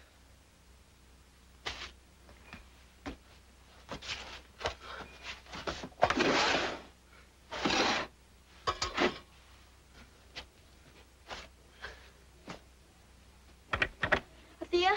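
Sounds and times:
person crawling on rug: 1.6 - 6.5.

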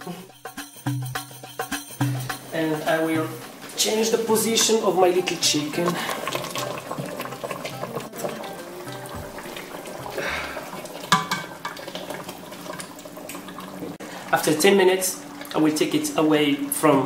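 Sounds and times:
utensils scraping and knocking pot: 2.2 - 14.0
chicken cooking in pot: 4.2 - 17.0.

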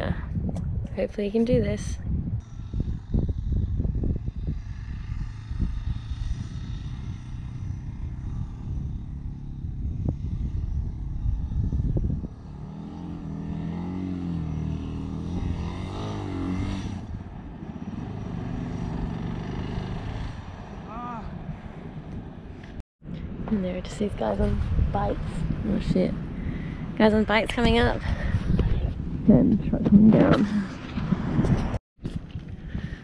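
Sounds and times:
wind rumble on microphone: 0.0 - 33.0
distant motorcycle engine revving: 2.4 - 22.8.

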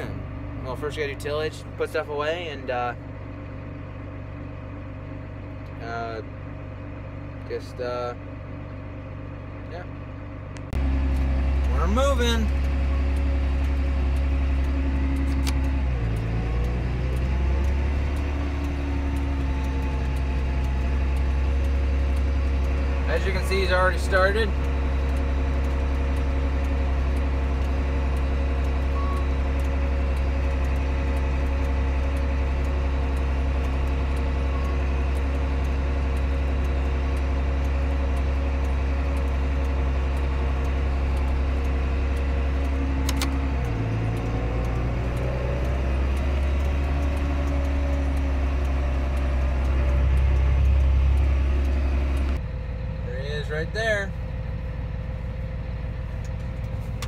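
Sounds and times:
tractor engine running: 0.0 - 57.0
sharp click: 43.0 - 43.4.

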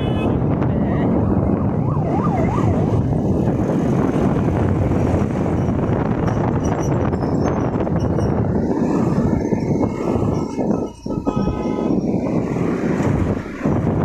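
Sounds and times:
motor scooter engine and road noise: 0.0 - 14.0
wind rushing over microphone: 0.0 - 14.0
warbling siren-like tone: 1.4 - 3.4, 6.8 - 12.4.

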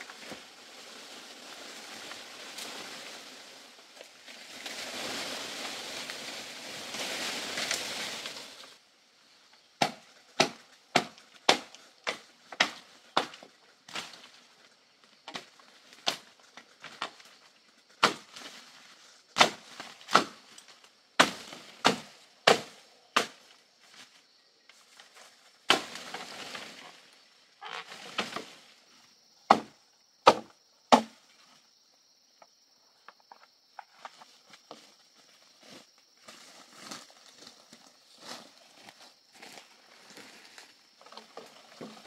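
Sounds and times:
leaves and brush rustling: 0.0 - 29.8, 32.9 - 42.0
blade chopping through stems: 9.8 - 13.4, 19.4 - 20.4, 21.2 - 23.4, 29.5 - 31.2.

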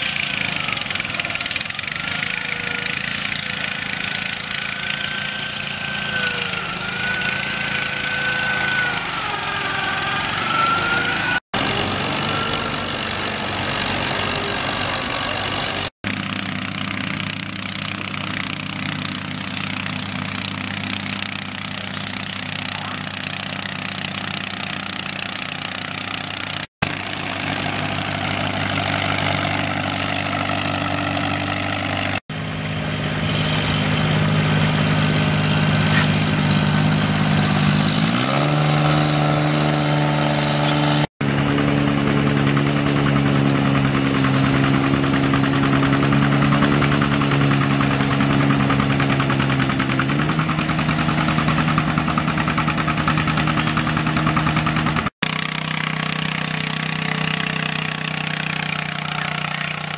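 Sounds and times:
small tractor engines under load: 0.0 - 59.9
wavering whine: 4.8 - 13.5.

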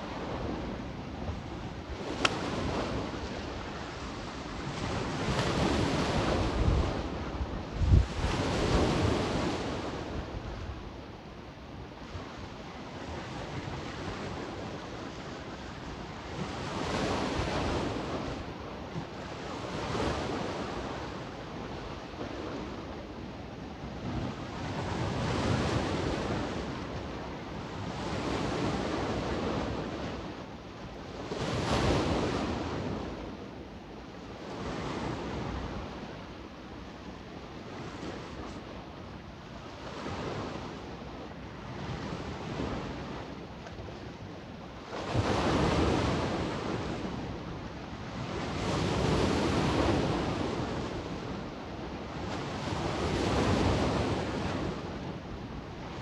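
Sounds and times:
sea waves washing onto beach: 0.0 - 10.4
wind on microphone: 0.0 - 56.0.

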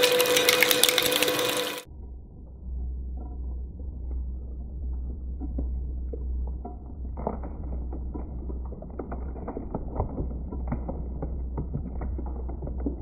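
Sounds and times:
shredder motor hum: 0.0 - 1.9.

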